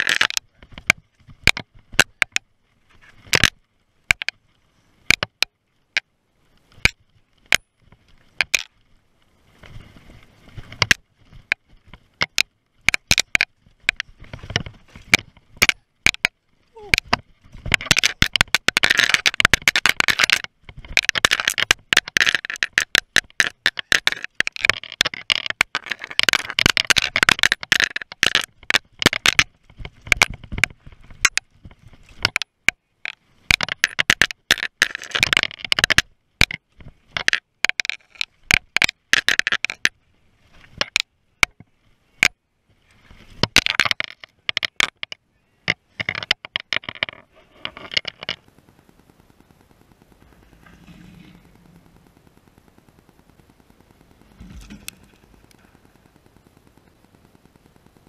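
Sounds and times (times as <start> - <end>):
mountain bike clattering over rocks: 10.6 - 39.9, 54.2 - 55.8
tyres scraping on dirt: 45.7 - 48.5, 50.1 - 52.2, 54.2 - 55.8.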